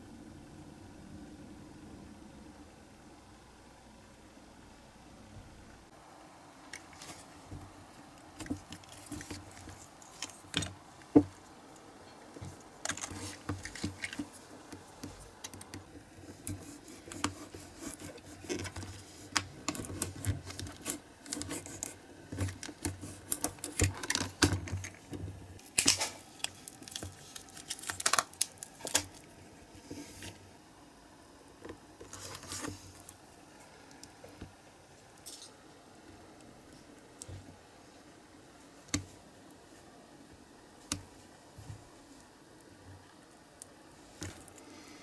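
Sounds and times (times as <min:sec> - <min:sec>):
plastic crackling and clicking: 0:12.4 - 0:29.3.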